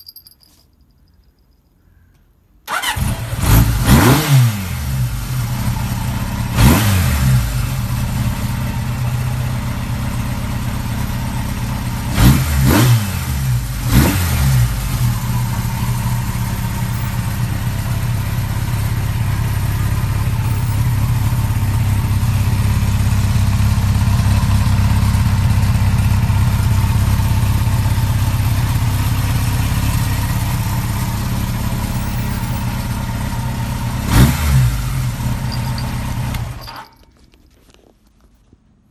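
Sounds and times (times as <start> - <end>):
motorcycle engine throttle blips: 2.7 - 3.5, 14.6 - 37.0
engine idling: 14.6 - 36.8.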